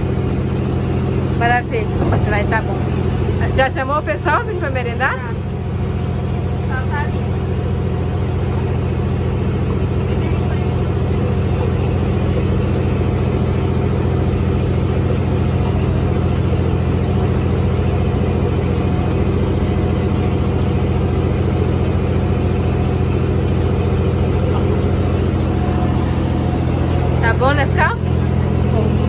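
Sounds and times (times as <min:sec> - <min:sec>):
boat engine droning: 0:00.0 - 0:29.0.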